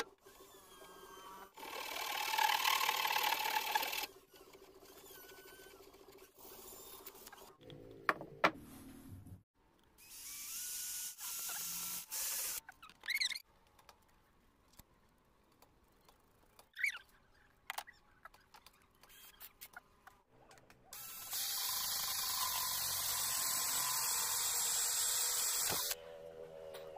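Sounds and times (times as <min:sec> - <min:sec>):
cordless drill boring pipe: 0:00.4 - 0:04.1, 0:21.0 - 0:26.0
squeaky chirps: 0:12.6 - 0:13.4, 0:16.7 - 0:20.0.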